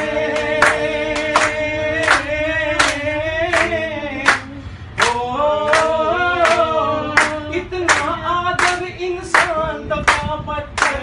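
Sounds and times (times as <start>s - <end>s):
group singing in unison: 0.0s - 11.0s
hand claps: 0.3s - 11.0s.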